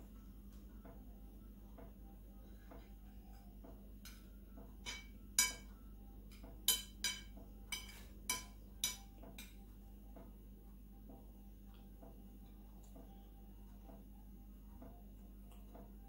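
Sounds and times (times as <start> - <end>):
cutlery clinking on ceramic plate: 4.8 - 5.7, 6.3 - 9.6.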